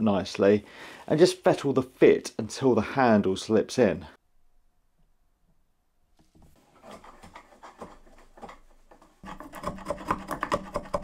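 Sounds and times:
chisel scraping wood: 6.2 - 11.0.

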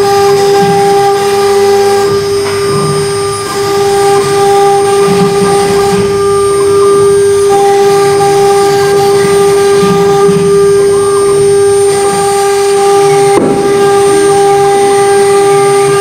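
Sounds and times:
rough wood cutting noise: 0.0 - 16.0
router spindle whine: 0.0 - 16.0.

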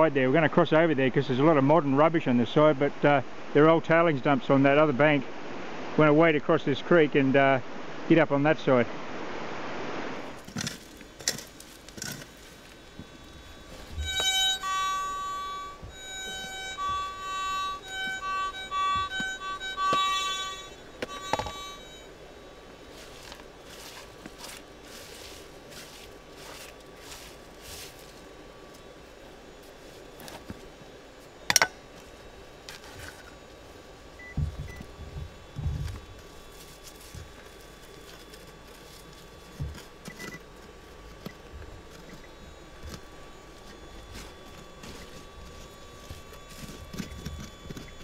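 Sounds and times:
faint steady tone: 0.0 - 48.0
pick digging into gravelly soil: 10.4 - 12.8, 22.9 - 28.3
metal detector beeps: 13.4 - 22.1, 31.5 - 31.8, 34.2 - 34.9, 39.7 - 40.6, 41.2 - 48.0.

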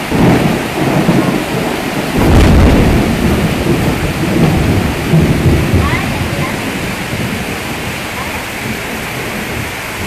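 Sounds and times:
heavy rain pouring: 0.0 - 10.0
deep rumble: 2.2 - 9.8.

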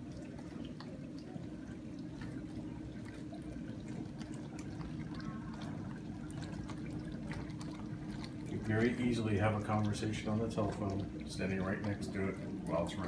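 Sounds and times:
dishwasher low hum: 0.0 - 13.0
water spraying inside dishwasher: 0.0 - 13.0.

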